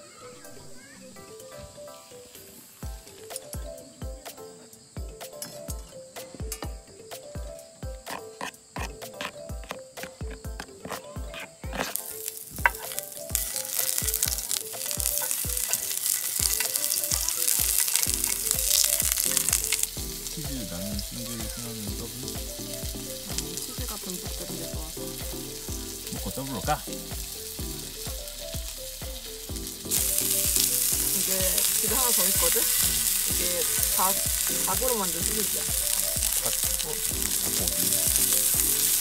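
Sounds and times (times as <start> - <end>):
background music with beat: 0.0 - 39.0
food sizzling in hot oil: 11.8 - 39.0.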